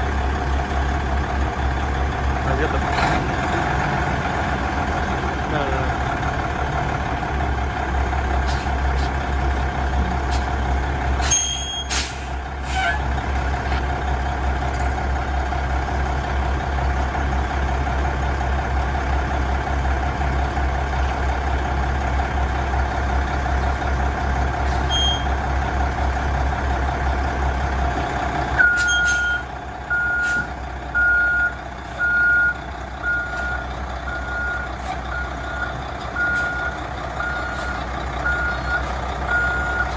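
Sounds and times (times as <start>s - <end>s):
diesel truck engine idling: 0.0s - 39.9s
reverse backup alarm beeping: 31.0s - 39.9s.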